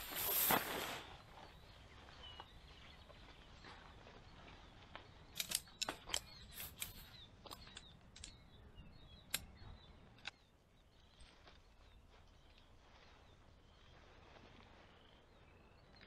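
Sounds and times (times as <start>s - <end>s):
tent poles clicking together: 5.3s - 8.4s.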